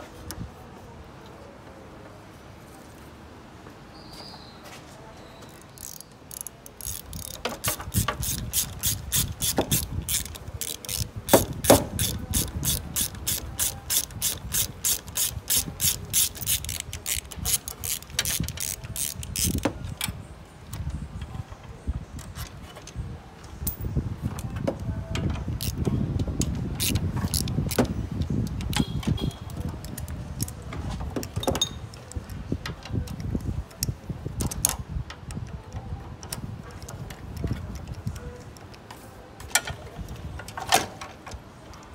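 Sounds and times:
ratchet wrench clicking: 5.5 - 20.0, 25.6 - 30.6.

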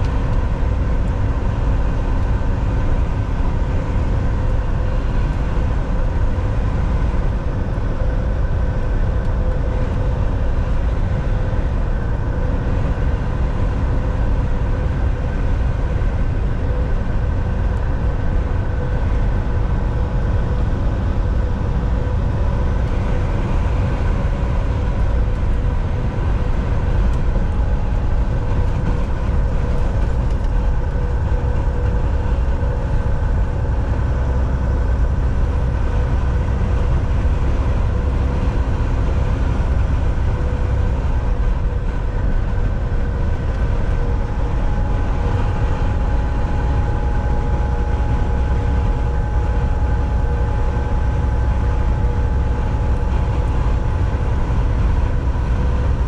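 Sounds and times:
road rumble: 0.0 - 56.0
truck engine drone: 0.0 - 56.0
faint whining tones: 16.6 - 55.9.

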